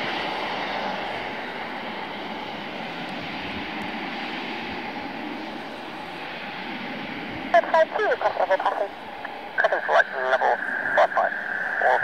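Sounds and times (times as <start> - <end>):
jet engines rushing: 0.0 - 12.0.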